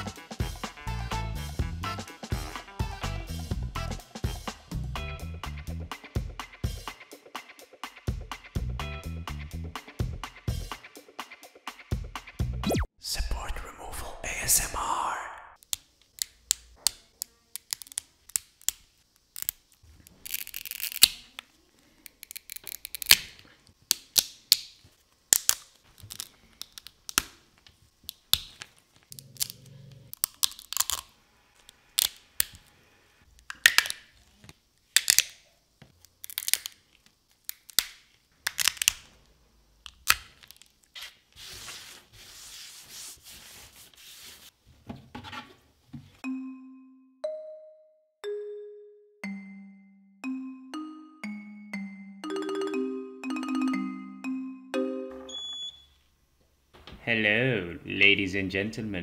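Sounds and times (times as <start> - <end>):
crunching and tearing: 17.6 - 21.4, 22.1 - 24.6, 28.3 - 31.1, 36.0 - 39.1.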